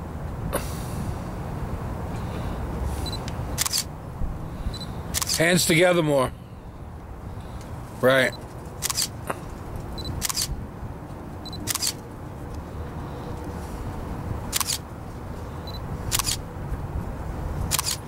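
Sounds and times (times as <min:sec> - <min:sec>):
camera shutter firing: 0:03.6 - 0:03.9, 0:05.1 - 0:05.4, 0:08.8 - 0:09.2, 0:10.2 - 0:10.6, 0:11.6 - 0:12.0, 0:14.5 - 0:14.8, 0:16.1 - 0:16.4, 0:17.7 - 0:18.0.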